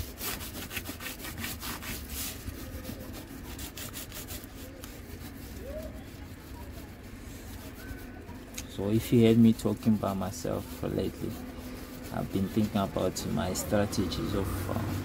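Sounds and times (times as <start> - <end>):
scraping on a hard surface: 0.0 - 15.0.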